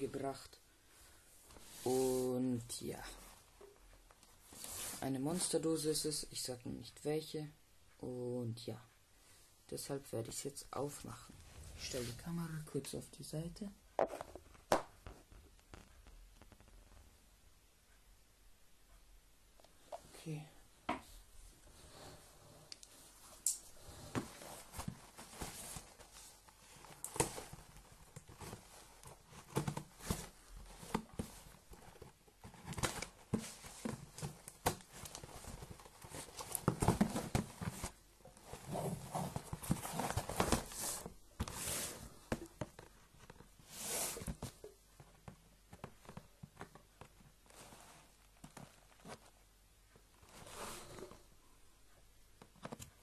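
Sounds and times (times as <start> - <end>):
cardboard parcel scrapes and rustles: 23.8 - 42.3, 43.6 - 44.6.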